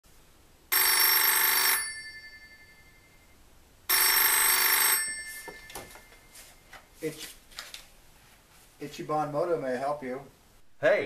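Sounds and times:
telephone ringing: 0.7 - 6.6.

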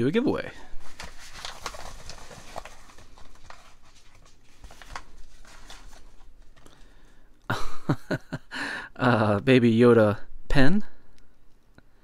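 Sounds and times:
paper envelope rustling: 0.7 - 7.2.

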